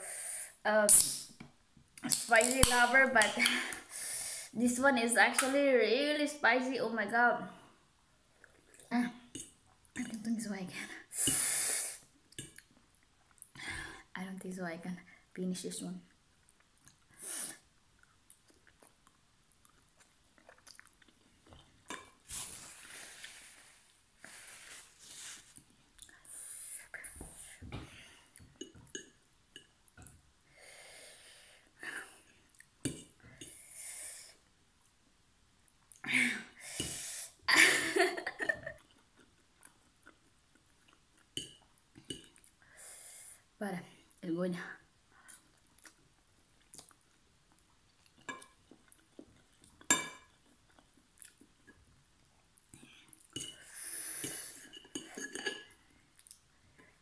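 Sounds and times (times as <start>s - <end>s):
chewing: 18.0s - 21.8s, 38.7s - 42.6s, 45.3s - 51.8s.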